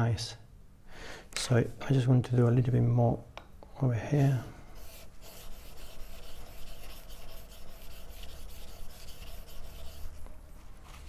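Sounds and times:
blade scraping on whetstone: 0:04.9 - 0:10.3.

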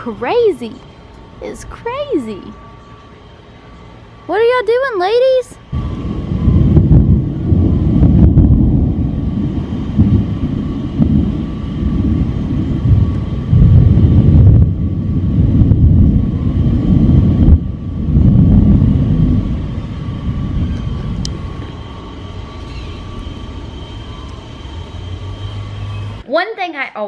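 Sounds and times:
thunder rumbling: 0:05.6 - 0:26.2.

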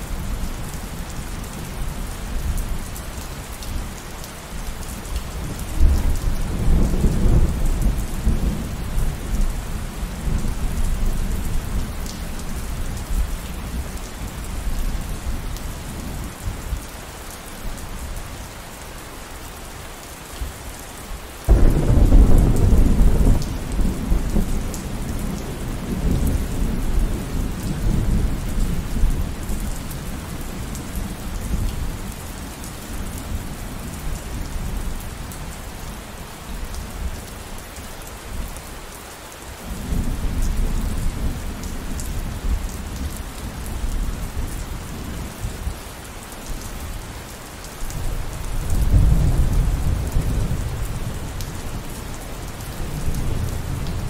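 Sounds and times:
steady rain: 0:00.0 - 0:54.0
loud thunder clap: 0:21.5 - 0:23.9
thunder rolling: 0:21.5 - 0:24.6.

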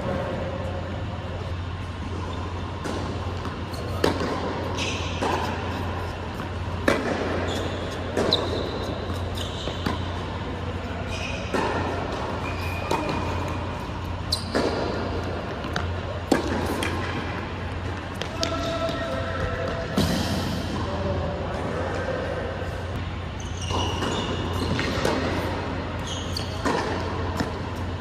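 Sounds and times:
steady low hum: 0:00.0 - 0:28.0
sneaker squeaks: 0:01.5 - 0:17.0, 0:21.8 - 0:28.0
tennis ball bounces: 0:02.7 - 0:10.3, 0:11.4 - 0:18.5, 0:23.7 - 0:25.6, 0:26.4 - 0:27.9.

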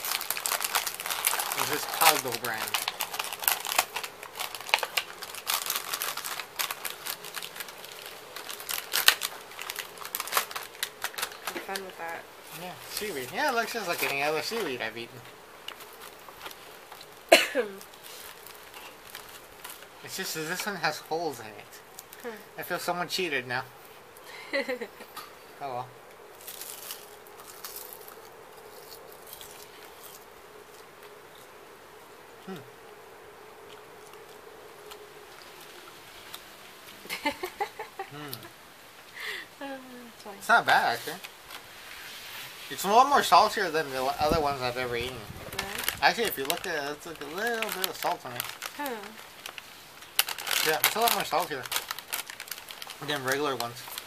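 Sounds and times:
seaweed snack crunching: 0:00.0 - 0:11.8, 0:15.6 - 0:20.6, 0:26.3 - 0:31.5, 0:45.6 - 0:54.0
plastic wrapper crinkling: 0:00.0 - 0:14.9, 0:15.6 - 0:20.8, 0:26.4 - 0:30.2, 0:40.8 - 0:54.0
faint steady hum: 0:00.0 - 0:54.0.

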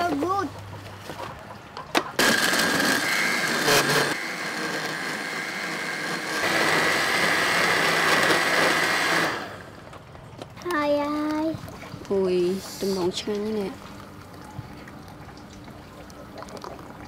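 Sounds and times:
blender motor whining: 0:02.2 - 0:09.8.

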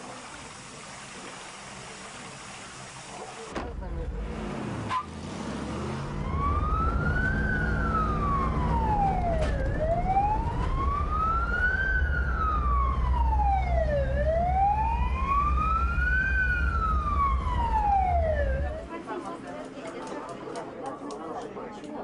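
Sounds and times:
vehicle engine rumble: 0:03.5 - 0:18.8
siren wailing: 0:06.0 - 0:18.8.

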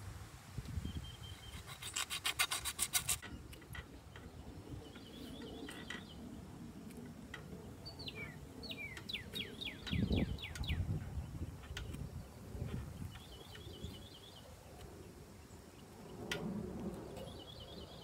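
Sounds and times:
rasping scraping strokes: 0:01.4 - 0:03.4.

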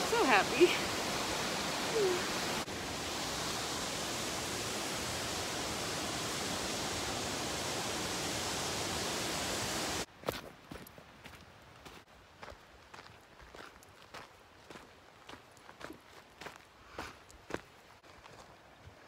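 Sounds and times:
waterfall rushing: 0:00.0 - 0:10.1.

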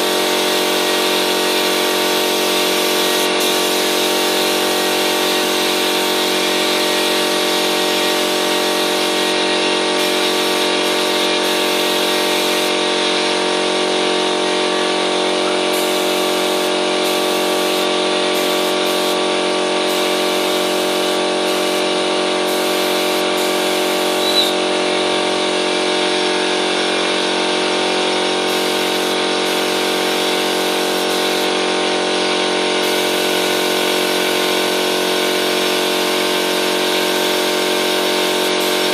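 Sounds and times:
air compressor motor humming: 0:00.0 - 0:38.9.

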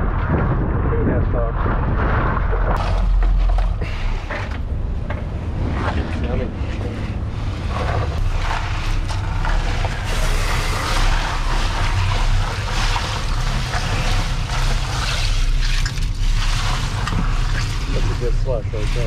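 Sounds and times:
outboard engines humming: 0:02.4 - 0:19.0
crushed ice rattling and crunching: 0:07.4 - 0:19.0.

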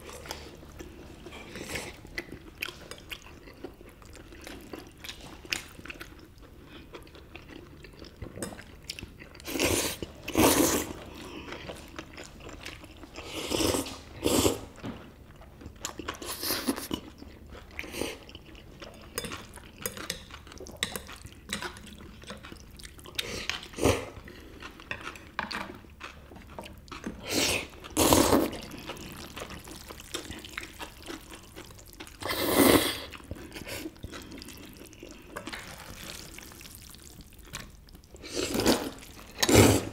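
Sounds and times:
chewing: 0:00.0 - 0:39.9
noodles slurped: 0:27.2 - 0:39.9.

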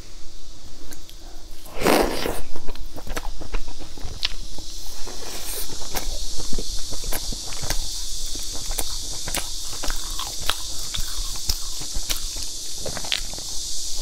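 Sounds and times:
wet mouth clicks: 0:00.9 - 0:03.6, 0:05.3 - 0:13.6
chewing cake: 0:00.9 - 0:14.0.

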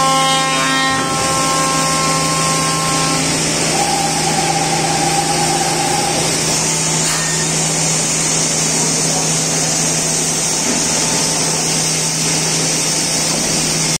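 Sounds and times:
faint machine whine: 0:00.0 - 0:08.3
machine hiss and hum: 0:00.0 - 0:14.0.

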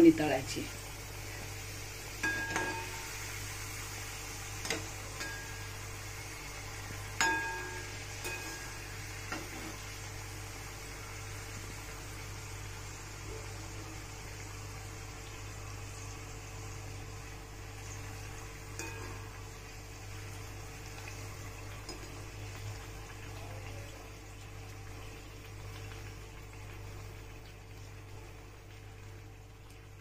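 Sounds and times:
dough frying in hot oil: 0:00.0 - 0:30.0.

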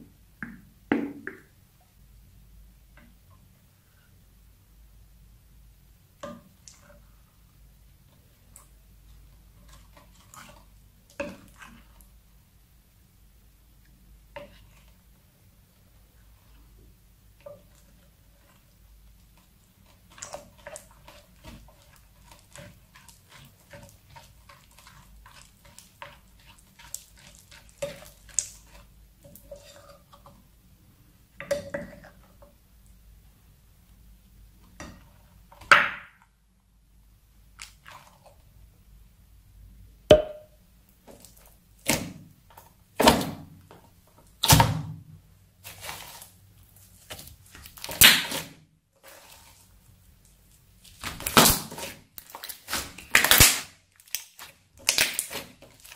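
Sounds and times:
spatula stirring sticky glue: 0:08.0 - 0:12.2, 0:13.8 - 0:30.5, 0:49.0 - 0:53.3, 0:54.0 - 0:55.9
slime popping and squelching: 0:50.8 - 0:55.9.

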